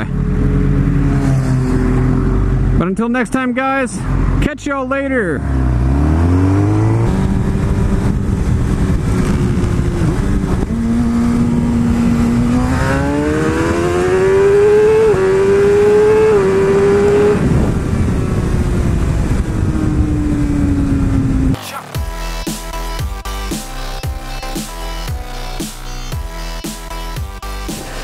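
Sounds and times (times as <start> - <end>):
motorbike engine revving and shifting: 0.0 - 2.8, 5.4 - 21.6
wind rush: 6.0 - 14.6, 16.4 - 21.6.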